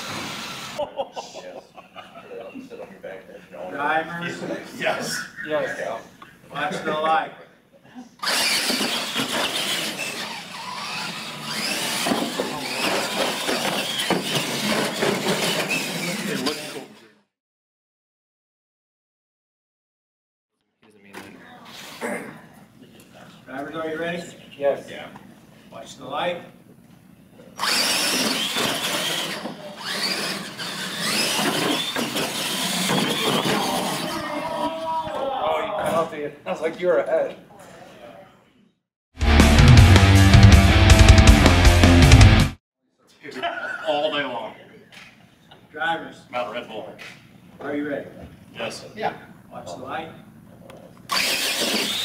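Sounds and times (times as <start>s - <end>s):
rc truck motors whining: 0.0s - 0.8s, 8.2s - 17.1s, 27.6s - 34.6s, 51.1s - 52.0s.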